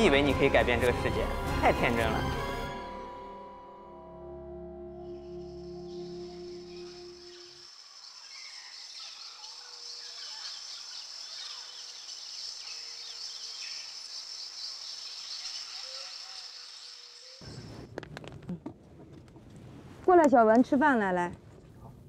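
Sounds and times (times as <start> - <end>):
insects chirring: 4.7 - 18.0
small bird chirps: 5.7 - 17.8.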